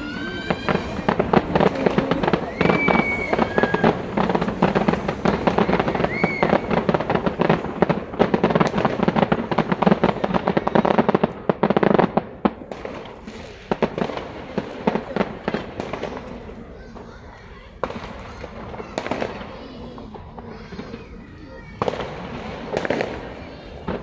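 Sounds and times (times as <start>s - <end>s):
firework whistle: 0.0s - 9.2s
fireworks crackling and popping: 0.0s - 24.0s.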